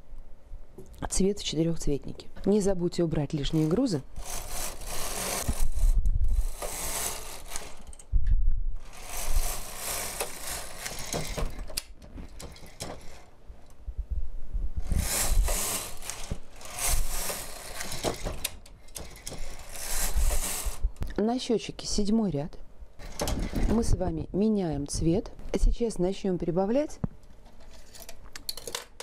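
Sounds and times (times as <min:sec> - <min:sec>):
knitting machine carriage clattering: 0:03.3 - 0:08.1, 0:08.8 - 0:13.3, 0:14.8 - 0:20.8, 0:23.0 - 0:23.9
knitting machine clicks: 0:03.5 - 0:08.1, 0:08.8 - 0:13.3, 0:14.8 - 0:20.8.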